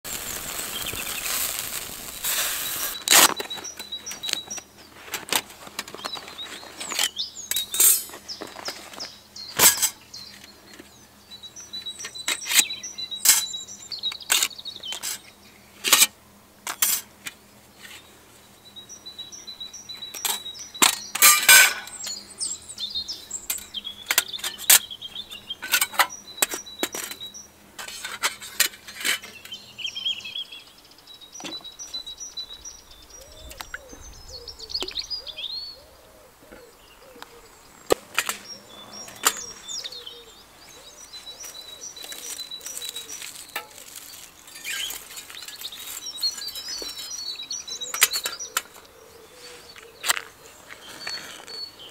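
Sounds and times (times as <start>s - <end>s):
meat sizzling on a grill: 0.0s - 3.1s
birds chirping: 0.0s - 15.8s, 17.3s - 51.9s
metal stove panels clinking: 21.2s - 21.9s.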